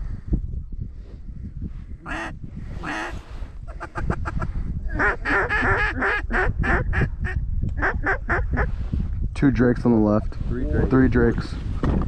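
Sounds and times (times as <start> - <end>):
duck quacking: 2.1 - 3.1, 5.0 - 7.0.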